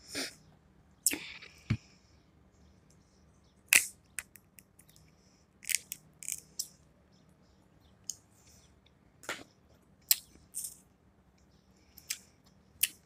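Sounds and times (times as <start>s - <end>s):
shellfish shells cracking: 5.6s - 6.5s.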